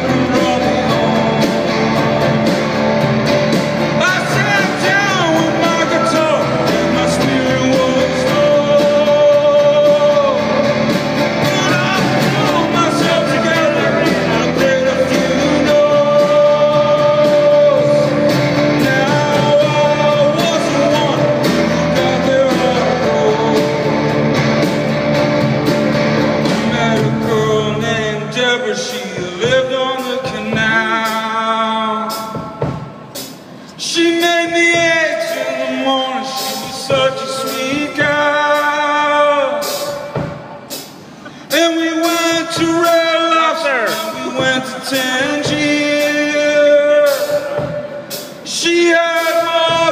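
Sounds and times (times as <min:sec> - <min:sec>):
man singing: 0:00.0 - 0:24.7, 0:26.4 - 0:40.4, 0:41.2 - 0:49.9
amplified acoustic guitar: 0:00.0 - 0:28.8.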